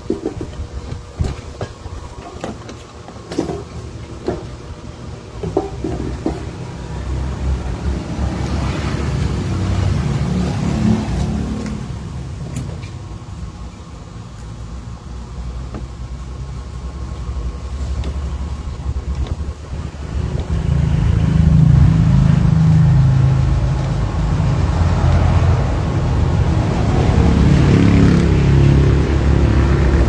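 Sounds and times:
passing vehicle rumble: 4.3s - 13.6s, 16.3s - 30.0s.

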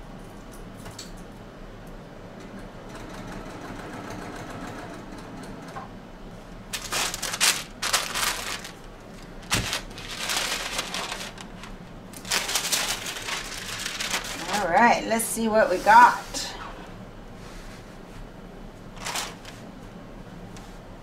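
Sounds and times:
stiff sheet rustling: 6.7s - 14.8s, 19.0s - 19.7s.

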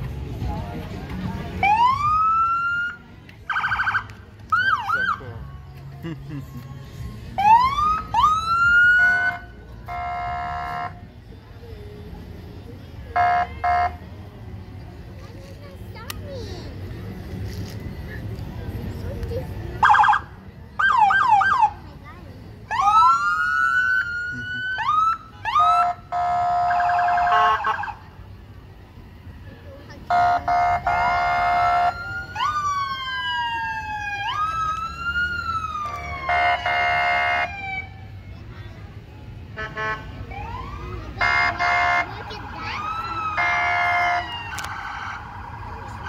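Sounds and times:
emergency vehicle siren: 1.6s - 5.4s, 7.3s - 11.0s, 19.8s - 21.8s, 22.7s - 28.0s, 30.1s - 38.1s, 40.2s - 46.0s
vehicle horn blasts: 9.9s - 11.0s.

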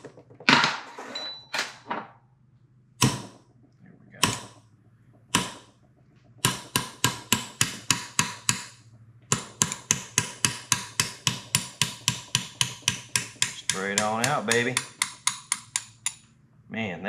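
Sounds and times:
hammer tapping on metal: 4.2s - 4.6s, 5.3s - 5.7s, 6.4s - 16.3s.

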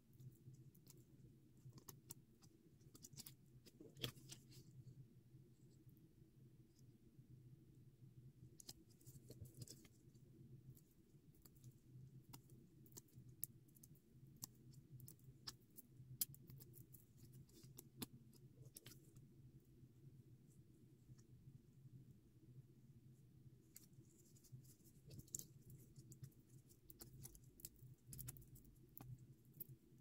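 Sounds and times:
small irregular clicks and ticks: 0.0s - 22.5s, 23.2s - 30.0s
low steady hum: 0.0s - 30.0s.

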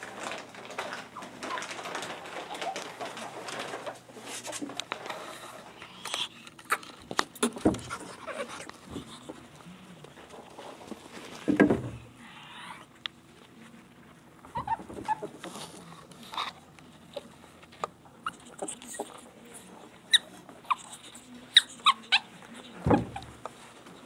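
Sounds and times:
ferrets scuffling: 0.0s - 24.0s
ferret squeaks: 20.1s - 22.3s.

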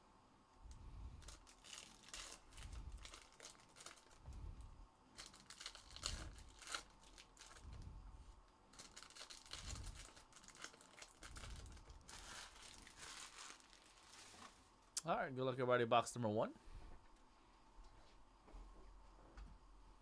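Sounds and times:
foil packs crinkling: 1.2s - 4.3s, 5.1s - 7.8s, 8.7s - 14.7s.

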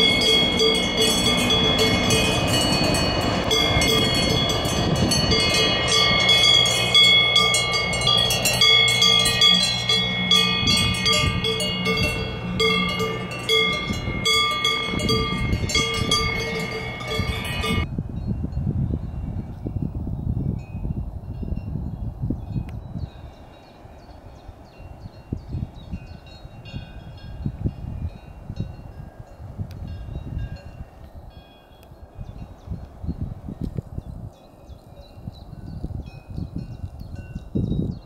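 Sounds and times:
cowbells clanking: 0.0s - 17.9s.

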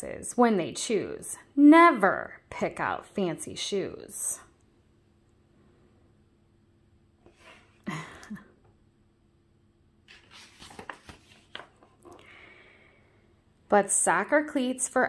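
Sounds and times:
book page turning: 10.0s - 12.2s.

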